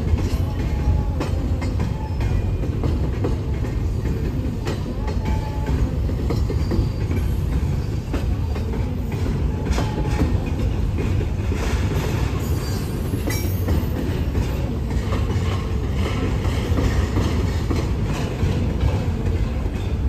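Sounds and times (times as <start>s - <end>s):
train wheels rumbling on rail: 0.0s - 20.0s
wheels clacking over rail joints: 0.0s - 20.0s
high wheel squeal: 12.3s - 13.8s.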